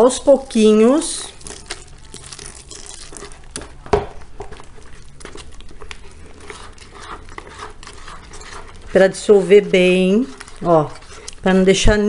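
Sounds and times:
spatula scraping in bucket: 6.0s - 12.0s.

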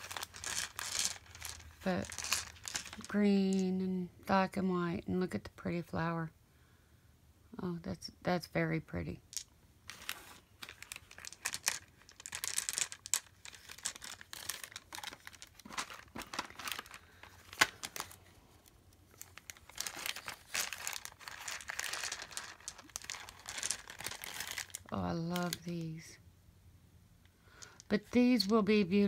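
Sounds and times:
plastic bag crinkling: 0.0s - 3.7s, 9.3s - 25.8s.

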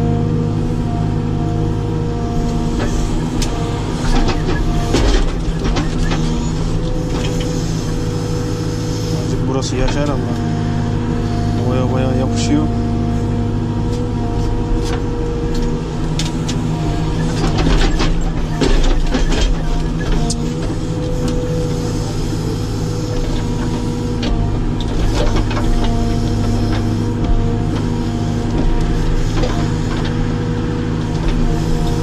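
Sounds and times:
diesel engine running under load: 0.0s - 32.0s.

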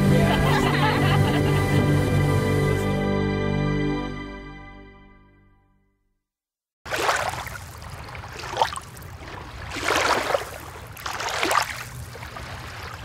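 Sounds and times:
waves washing: 0.0s - 3.0s, 6.9s - 13.0s.

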